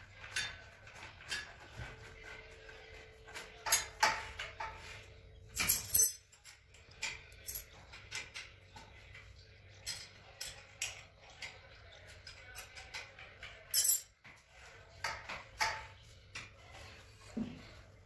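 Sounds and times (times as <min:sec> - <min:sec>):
metal clatter: 0:03.3 - 0:11.6, 0:12.5 - 0:14.2
metal parts clicking and clinking: 0:03.3 - 0:14.2.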